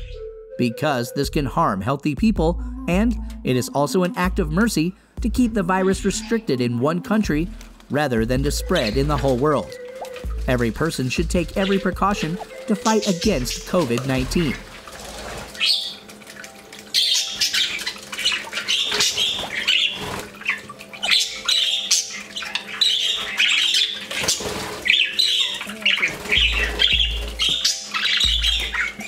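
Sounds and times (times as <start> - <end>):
budgerigars chirping and squawking: 5.5 - 6.6, 8.4 - 29.0.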